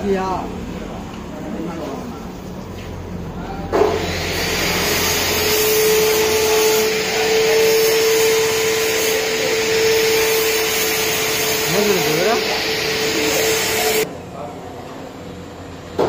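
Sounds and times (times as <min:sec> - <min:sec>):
angle grinder motor whine: 0:03.9 - 0:14.1.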